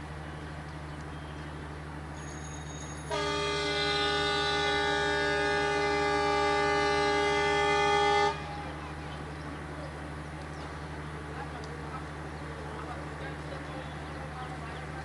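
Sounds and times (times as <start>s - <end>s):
low engine hum: 0.0s - 15.0s
train air horn: 3.0s - 8.8s.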